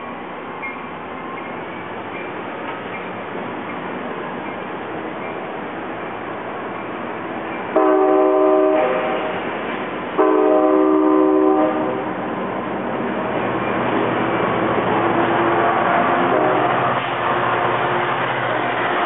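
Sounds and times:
train cars rumbling past: 0.0 - 19.0
locomotive horn blasts: 7.8 - 9.4, 10.2 - 12.1, 15.6 - 17.0.

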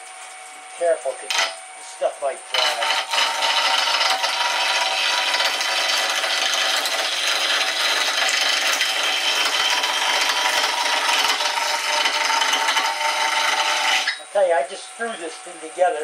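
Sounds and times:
turning tool scraping wood: 1.2 - 1.6, 2.5 - 14.3
lathe hum: 1.2 - 15.8.

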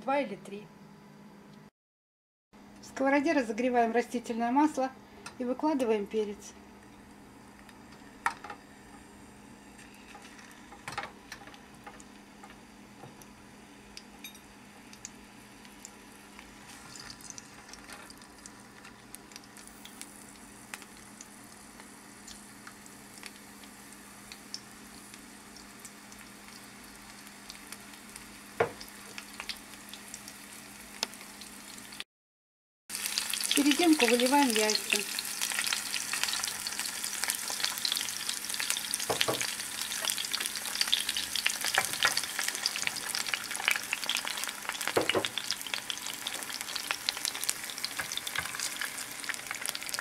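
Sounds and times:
peppers sizzling in oil: 6.8 - 32.0, 32.9 - 50.0
knocks in the pan: 28.6 - 28.8, 39.0 - 39.5, 44.9 - 45.4.

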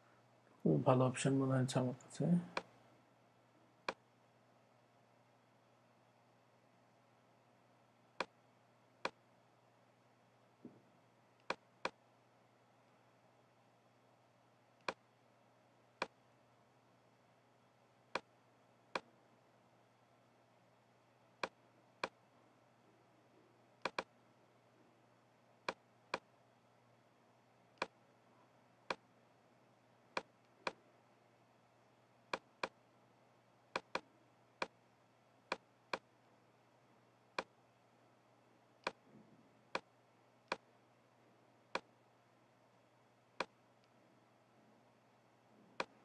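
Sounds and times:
faint low hum: 0.0 - 46.0
computer mouse clicking: 11.4 - 12.0, 23.8 - 24.1, 33.8 - 34.7.

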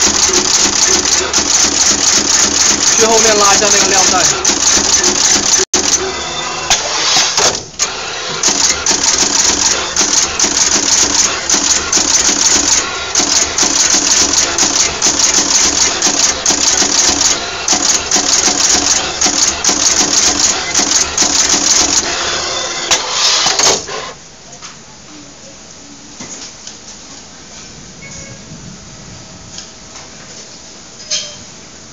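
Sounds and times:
insertion machine clattering: 0.0 - 6.1, 6.7 - 24.1.

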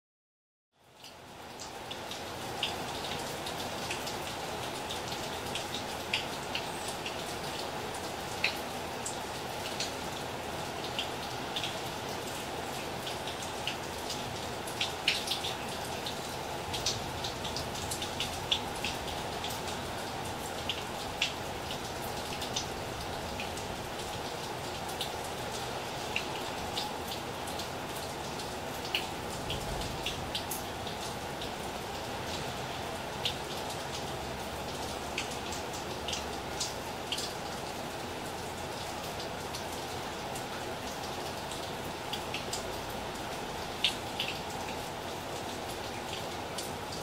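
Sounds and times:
raindrops ticking close by: 0.8 - 47.0
steady rain hiss: 0.8 - 47.0.

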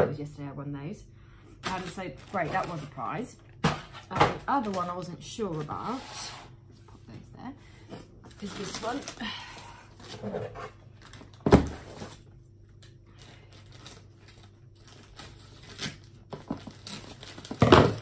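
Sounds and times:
packaging tearing and rustling: 1.6 - 3.0, 8.4 - 9.3, 9.9 - 12.2, 12.8 - 18.0.

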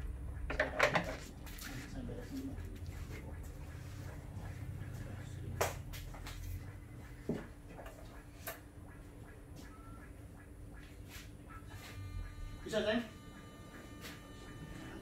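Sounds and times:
low steady rumble: 0.0 - 7.8.

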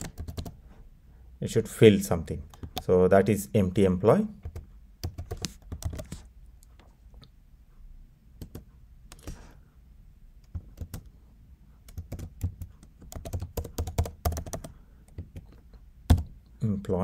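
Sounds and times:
computer keyboard typing: 0.0 - 0.6, 2.5 - 2.8, 4.4 - 6.3, 8.4 - 9.4, 10.4 - 11.1, 11.8 - 16.4.

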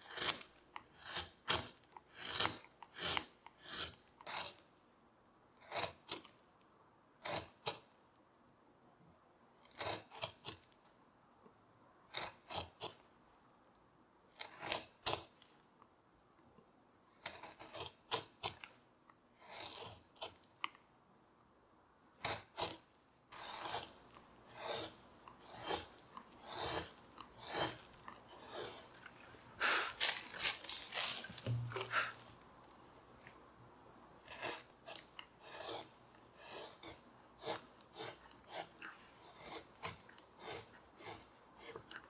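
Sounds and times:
gouge cutting wood: 0.0 - 4.6, 19.4 - 20.4, 22.2 - 32.2, 34.2 - 41.9
soft thump: 31.4 - 31.9.

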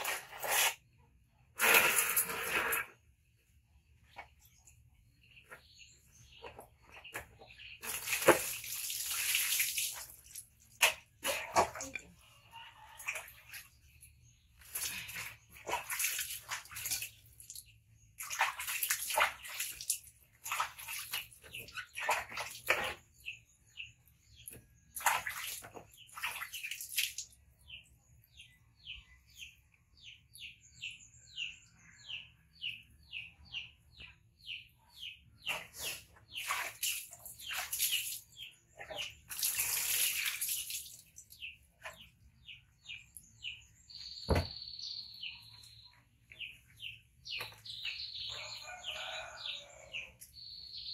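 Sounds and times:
water splashing: 7.8 - 12.1, 14.6 - 23.0, 25.0 - 27.3, 36.3 - 42.0.

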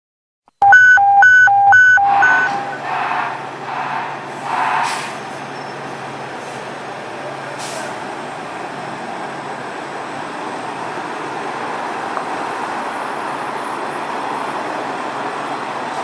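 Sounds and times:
two-tone electronic alert: 0.6 - 2.8
diesel engines idling: 0.8 - 16.0.

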